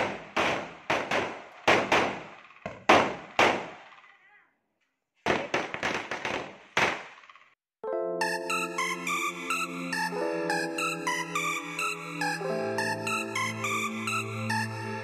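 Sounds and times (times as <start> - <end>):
firecrackers banging: 0.0 - 4.4, 5.2 - 7.6.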